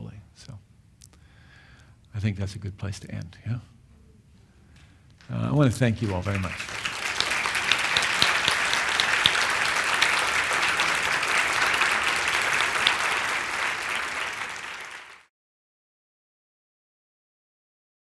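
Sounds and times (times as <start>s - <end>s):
audience applauding: 5.6s - 15.3s.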